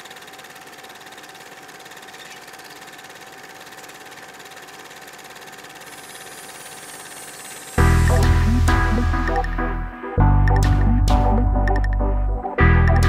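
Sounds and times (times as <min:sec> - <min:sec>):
mechanical whirring with ticking: 0:00.0 - 0:07.8.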